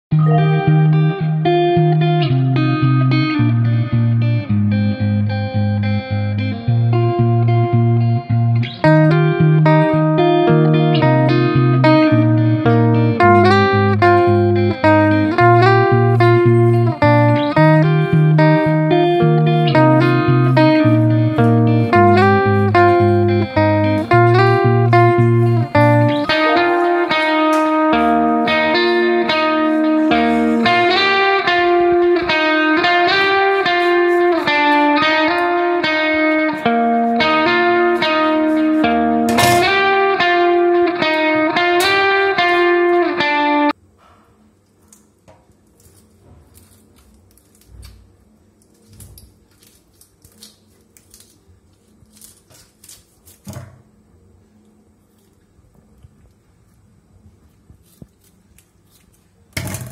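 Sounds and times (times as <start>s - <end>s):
background guitar music: 0.1s - 43.8s.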